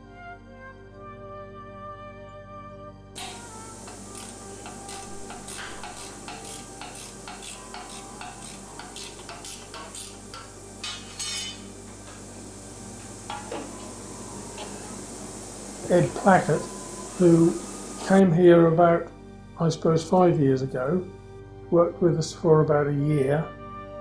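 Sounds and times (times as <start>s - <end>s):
steel bar clinking and scraping: 3.2s - 11.7s
steady low hum: 3.2s - 22.0s.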